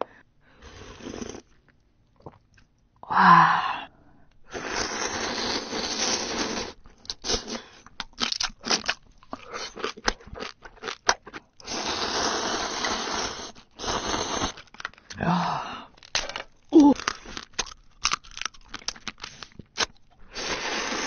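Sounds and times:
noodle slurping: 0.6s - 1.5s, 4.5s - 7.8s, 11.6s - 14.7s, 19.7s - 21.0s
wet chewing and lip-smacking: 7.8s - 11.6s, 16.9s - 20.2s.

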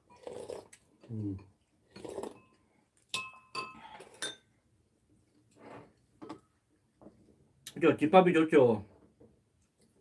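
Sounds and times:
soft eating sounds: 0.0s - 7.8s
utensils clinking on ceramic bowls: 2.0s - 4.5s.

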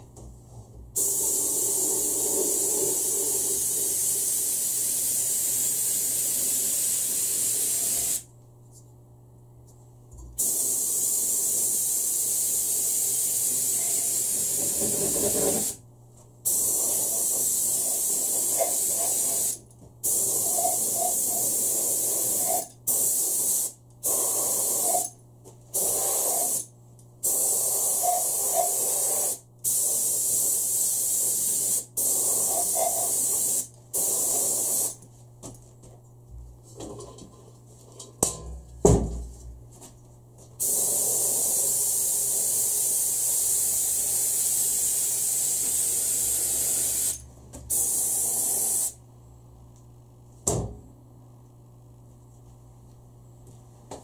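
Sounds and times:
paint spray gun hissing: 1.0s - 8.2s, 10.4s - 15.8s, 16.5s - 25.1s, 25.8s - 35.0s, 40.6s - 49.0s.

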